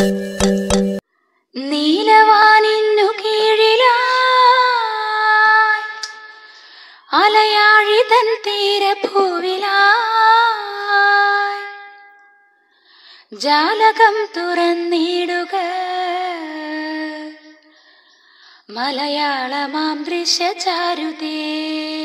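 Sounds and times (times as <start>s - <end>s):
woman singing: 1.6s - 12.2s, 13.3s - 17.7s, 18.6s - 22.0s.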